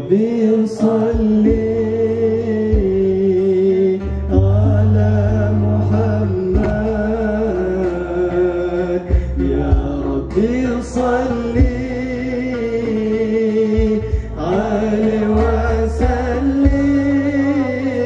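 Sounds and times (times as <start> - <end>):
bass line: 0.0 - 18.0
man singing: 0.0 - 18.0
sharp percussion strikes: 9.1 - 18.0.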